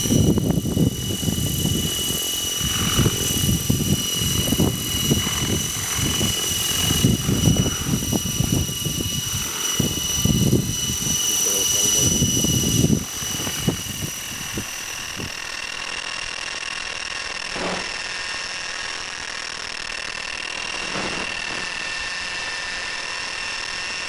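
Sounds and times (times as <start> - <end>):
wind on microphone: 0.0 - 15.6
model helicopter whine: 0.0 - 24.0.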